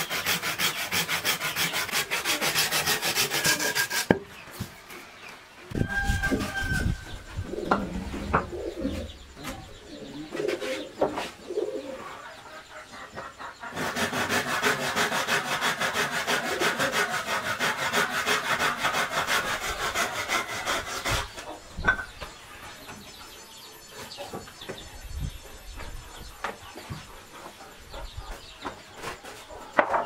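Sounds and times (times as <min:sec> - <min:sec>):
hand tool working wood: 0:00.0 - 0:04.7, 0:13.7 - 0:22.0
bird calls: 0:04.3 - 0:15.3
dove cooing: 0:07.4 - 0:09.2, 0:09.8 - 0:12.2.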